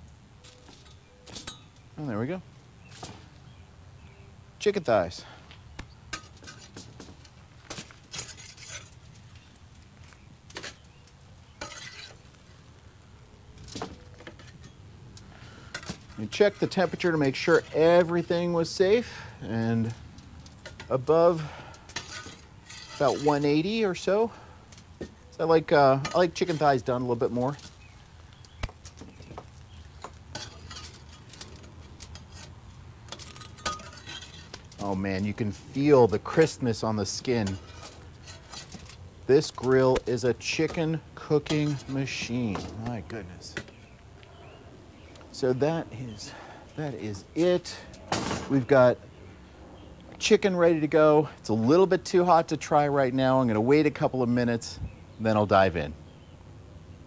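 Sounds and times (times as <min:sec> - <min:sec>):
metal spatula scraping grill grate: 0:06.1 - 0:12.8, 0:13.5 - 0:48.9.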